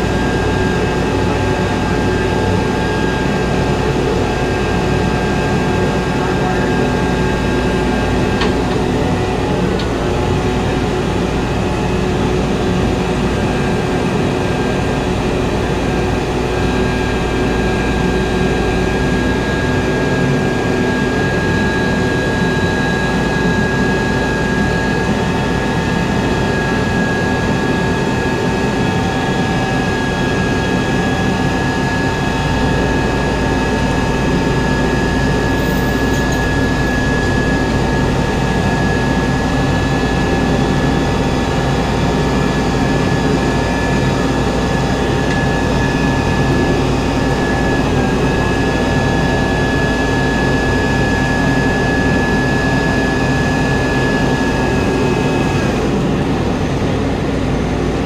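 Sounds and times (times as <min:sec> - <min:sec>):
constant whine: 0:00.0 - 0:58.0
heavy engine running under load: 0:00.0 - 0:58.0.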